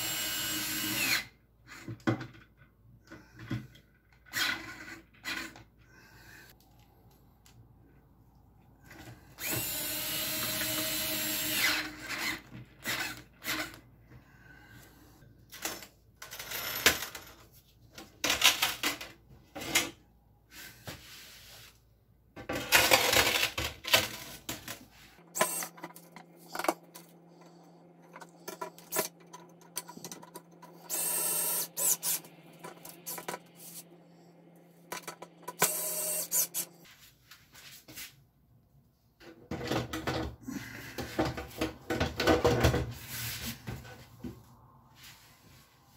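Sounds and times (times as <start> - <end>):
cordless screwdriver whirring: 9.4 - 13.8, 25.3 - 25.8, 30.8 - 33.8, 35.5 - 36.7.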